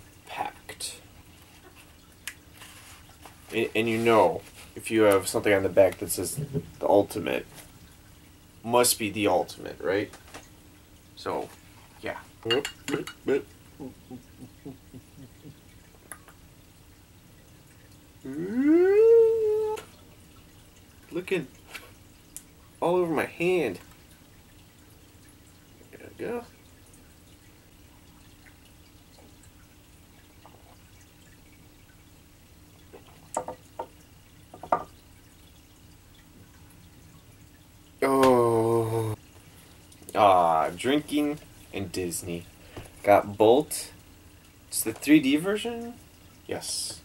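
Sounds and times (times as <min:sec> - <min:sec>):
man exclaiming ooh: 0:18.3 - 0:19.9, 0:38.0 - 0:39.2.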